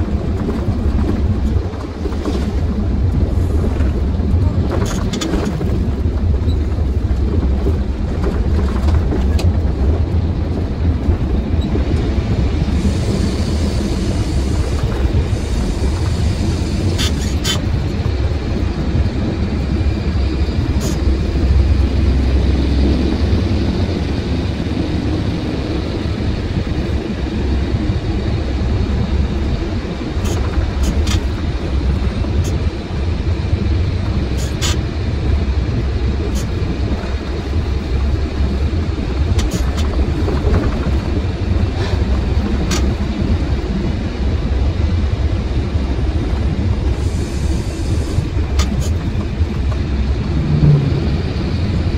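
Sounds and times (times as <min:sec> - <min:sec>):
truck engine and road rumble: 0:00.0 - 0:51.9
sharp clicks and rattles: 0:00.1 - 0:12.1.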